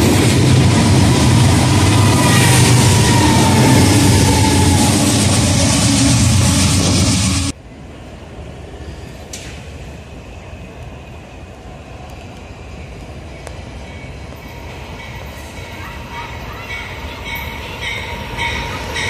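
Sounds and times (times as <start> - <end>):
diesel locomotive engine rumbling: 0.0 - 19.0
rush of moving train: 0.0 - 19.0
open-air background noise: 7.5 - 19.0.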